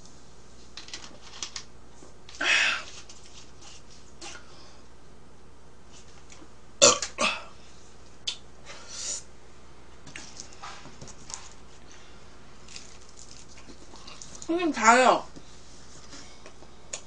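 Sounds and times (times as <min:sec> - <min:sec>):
woman burping: 0:06.8 - 0:07.5.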